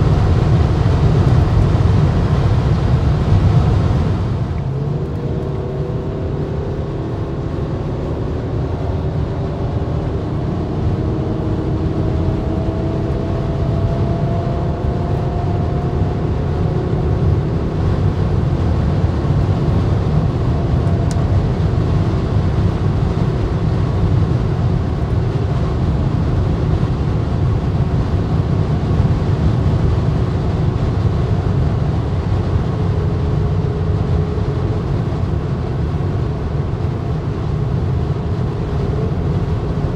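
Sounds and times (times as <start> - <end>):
car road and wind rumble: 0.0 - 39.9
faint engine tone rising: 2.2 - 18.5.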